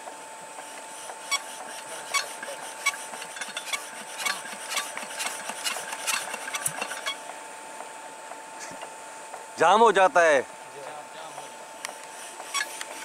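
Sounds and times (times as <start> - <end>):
metallic clicks and scraping: 1.1 - 7.2, 11.9 - 13.0.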